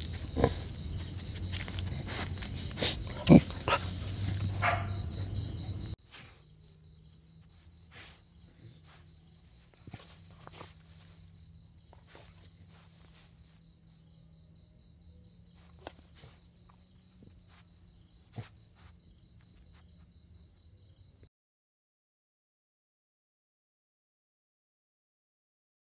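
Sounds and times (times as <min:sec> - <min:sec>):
insects chirring: 0:00.0 - 0:21.2
rustles in long grass: 0:07.4 - 0:13.9.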